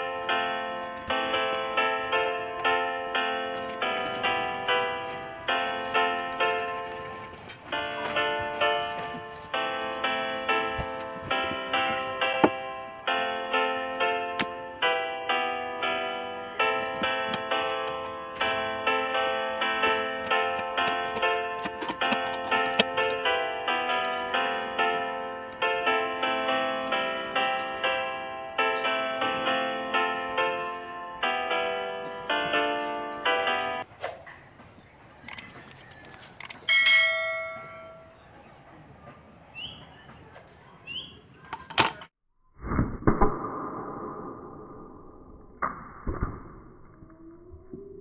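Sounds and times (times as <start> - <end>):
light melody of struck notes: 0.0 - 33.9
bird chirps: 1.8 - 3.1, 15.3 - 22.1, 24.1 - 30.9, 31.9 - 41.6
metallic ding: 36.7 - 38.2.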